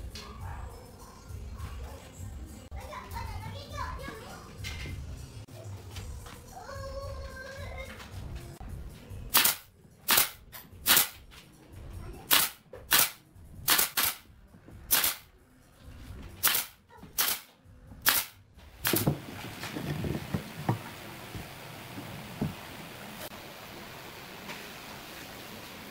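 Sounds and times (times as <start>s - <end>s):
nail gun firing: 9.3s - 11.2s, 12.3s - 14.2s, 14.9s - 15.2s, 16.4s - 19.2s.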